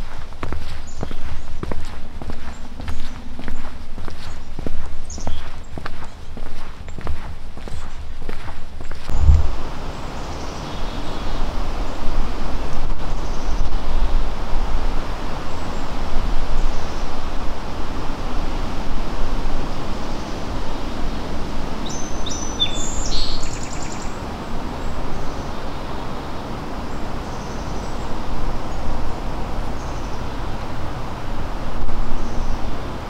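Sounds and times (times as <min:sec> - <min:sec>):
steady rushing noise: 0:00.0 - 0:20.1
bird chirping: 0:00.8 - 0:11.4, 0:21.9 - 0:24.2.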